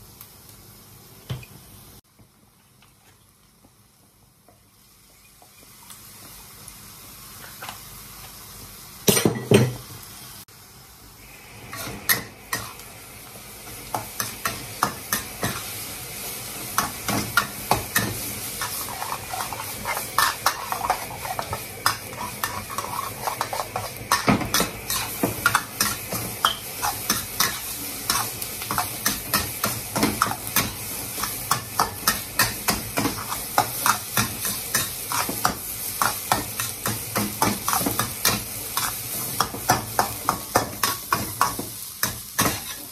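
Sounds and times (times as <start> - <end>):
rice sizzling: 0.0 - 42.9
metal spatula scraping wok: 18.0 - 29.4.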